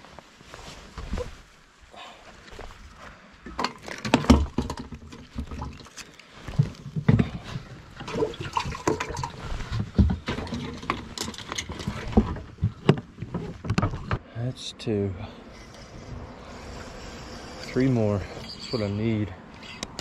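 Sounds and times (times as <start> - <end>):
knocks and clatters on boat: 3.5 - 14.2
water splashes: 4.6 - 10.9.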